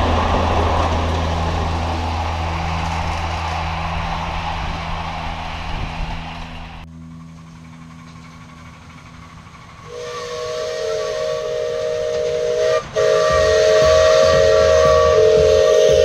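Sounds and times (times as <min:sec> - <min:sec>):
steam hissing: 0:00.0 - 0:06.8, 0:07.9 - 0:16.0
steam locomotive whistle: 0:09.8 - 0:16.0.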